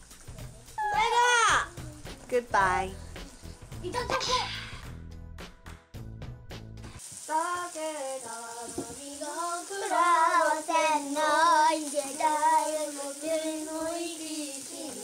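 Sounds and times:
child singing: 0.9 - 2.2, 7.3 - 15.0.

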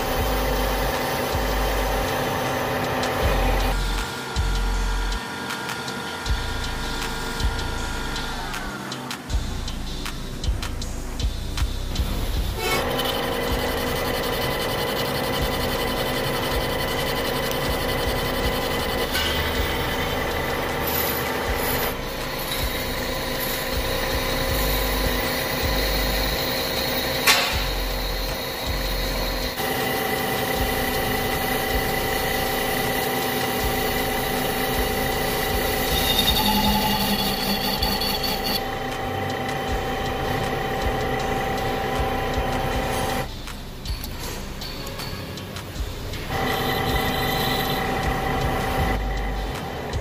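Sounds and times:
metal lathe humming: 0.0 - 5.1, 12.0 - 43.3, 46.3 - 50.0
cutting tool scraping steel: 12.5 - 43.3.

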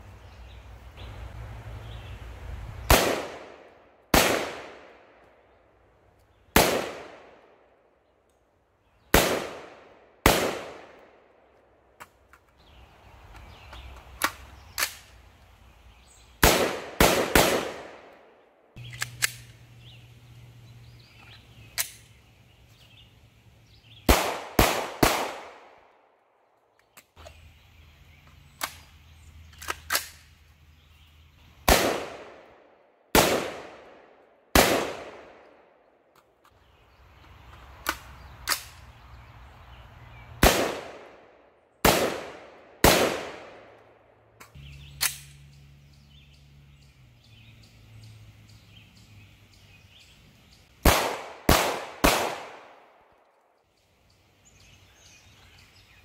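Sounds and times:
gunshots with echo: 16.4 - 18.1, 50.8 - 52.8.

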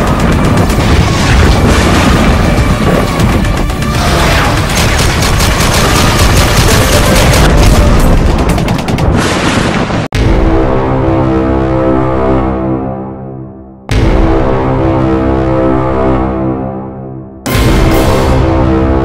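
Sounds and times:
music: 0.0 - 9.2, 10.1 - 19.0
rapid automatic gunfire: 0.0 - 9.6
booms: 0.0 - 10.9.

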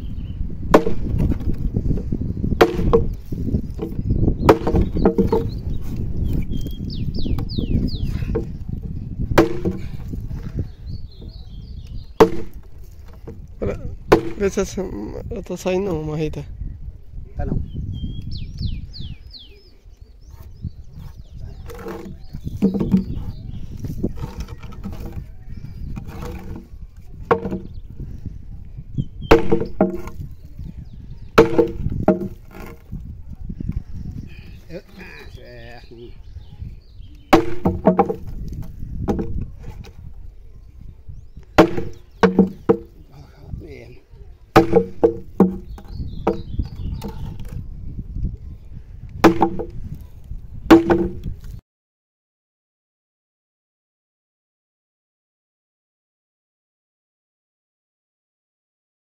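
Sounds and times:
sledgehammer striking wood: 0.7 - 1.6, 2.5 - 5.7, 9.3 - 10.2, 12.2 - 13.4, 14.1 - 14.7, 21.7 - 23.3, 26.0 - 27.8, 29.3 - 30.3, 31.4 - 32.8, 37.3 - 39.4, 41.6 - 43.0, 44.6 - 47.6, 49.2 - 50.0, 50.7 - 51.5
wood knocking on wooden tabletop: 2.6 - 5.7, 9.4 - 10.0, 14.1 - 14.6, 21.6 - 23.3, 24.2 - 25.3, 26.0 - 27.8, 29.3 - 30.2, 31.4 - 32.8, 37.3 - 40.0, 41.6 - 43.0, 44.6 - 47.6, 49.2 - 49.8, 50.7 - 51.5.

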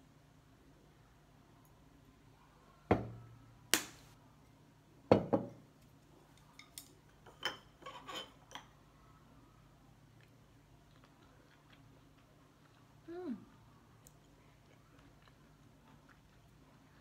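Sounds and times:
tableware knocks and clinks: 5.1 - 5.6, 6.6 - 8.7.

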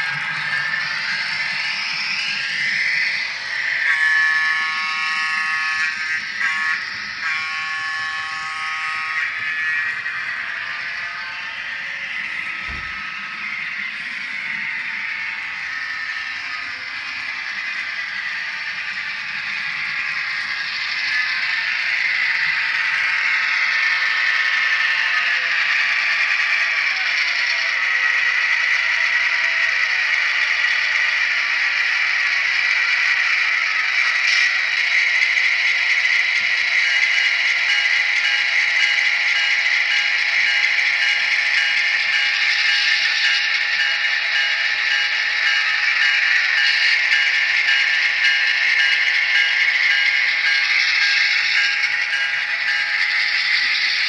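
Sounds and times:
locomotive air horn blasts: 6.5 - 9.2.

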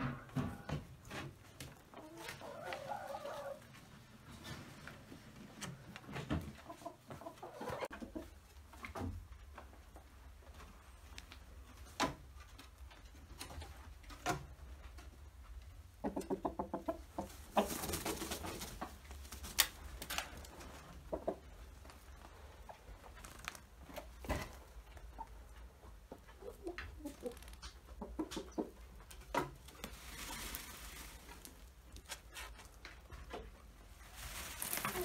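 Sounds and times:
chickens clucking: 0.1 - 5.0, 5.6 - 9.2, 11.7 - 31.7, 32.6 - 35.0
birds scratching on dirt: 16.2 - 22.4, 29.7 - 32.9, 34.0 - 35.0.

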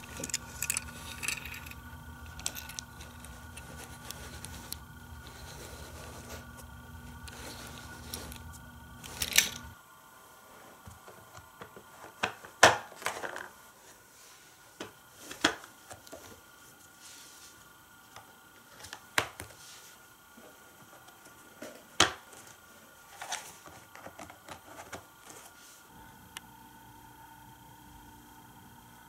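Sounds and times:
plastic toy track pieces clicking: 0.0 - 4.8, 9.0 - 9.6
low steady hum: 0.0 - 29.0.

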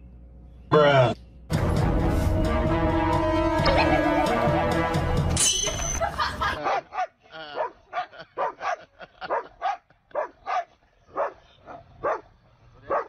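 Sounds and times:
dog barking and yelping: 6.0 - 12.3.

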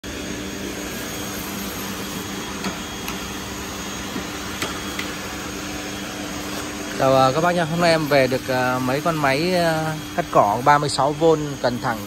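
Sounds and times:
machine humming and hissing: 0.0 - 12.0.

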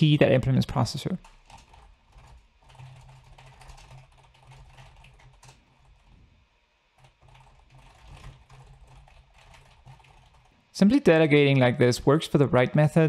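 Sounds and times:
typing on computer keyboard: 1.2 - 6.1, 7.0 - 10.5.

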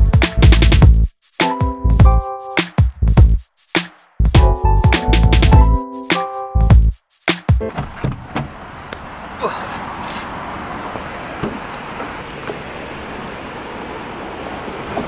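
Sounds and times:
car door opening: 7.6 - 9.0, 11.3 - 12.8.

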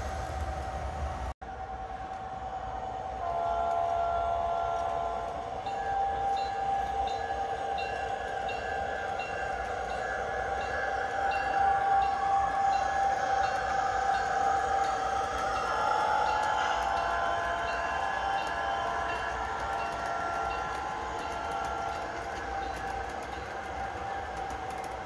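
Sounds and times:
multi-note locomotive horn: 1.4 - 22.9
locomotive bell ringing: 4.5 - 24.7.

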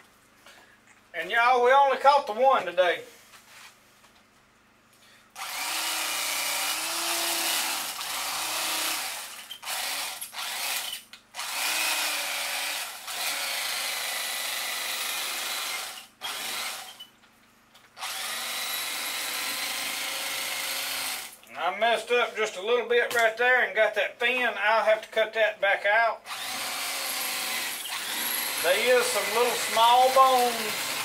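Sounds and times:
electric knife whining: 5.4 - 17.1, 18.0 - 21.4, 26.2 - 31.0.

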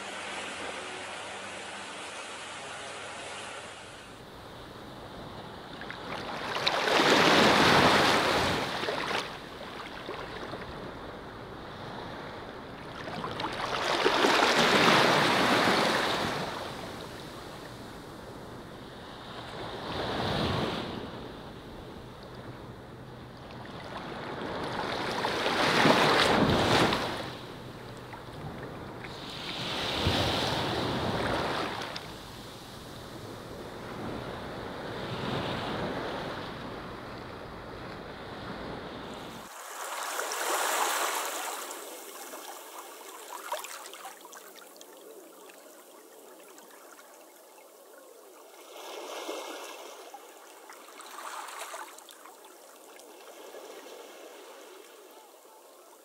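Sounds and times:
sea waves washing onto shore: 38.6 - 56.0.

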